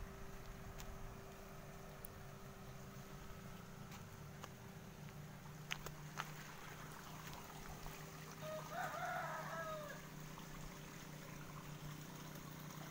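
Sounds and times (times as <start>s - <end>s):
low hum: 0.0s - 12.9s
rooster crowing: 8.4s - 10.1s.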